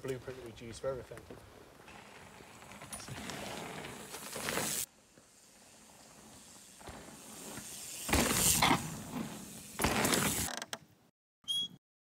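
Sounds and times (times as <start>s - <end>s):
mountain bike rushing past: 1.9s - 10.5s.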